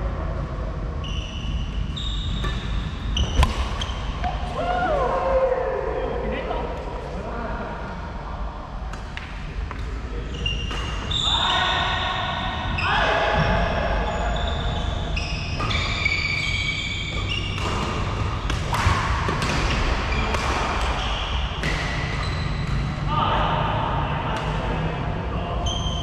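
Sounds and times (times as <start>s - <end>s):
low hum of sports hall: 0.0s - 26.0s
sneakers squeaking on wooden floor: 1.0s - 4.4s, 10.2s - 18.6s, 19.4s - 22.9s, 25.6s - 26.0s
rackets striking shuttlecock: 2.4s - 4.4s, 17.4s - 21.0s.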